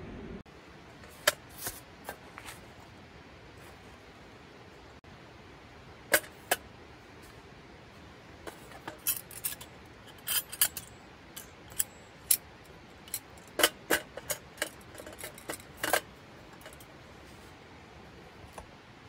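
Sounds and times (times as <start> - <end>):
metal clicks and clinks: 8.5 - 16.9.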